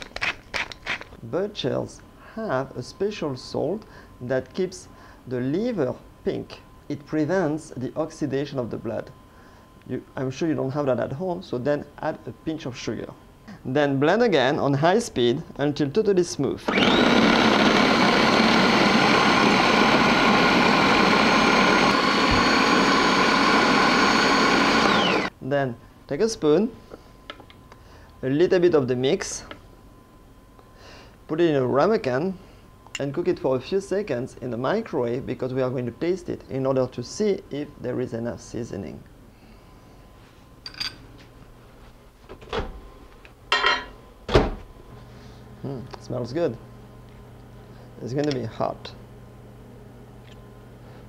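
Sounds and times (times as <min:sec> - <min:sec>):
food processor motor whining: 0:16.6 - 0:25.4.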